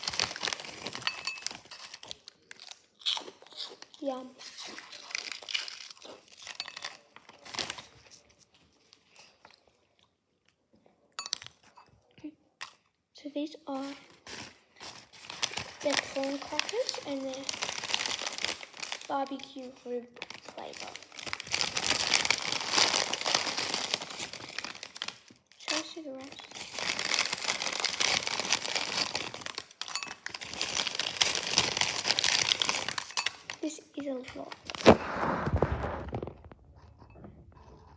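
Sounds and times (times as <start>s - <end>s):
crunching corn crackers: 0.0s - 8.5s, 14.2s - 19.5s, 20.2s - 33.7s.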